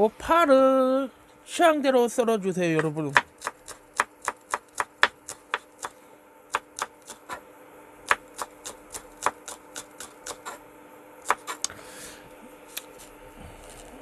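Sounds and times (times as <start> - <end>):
knife chopping onion on wooden board: 2.8 - 7.4, 8.0 - 10.6, 11.2 - 11.7.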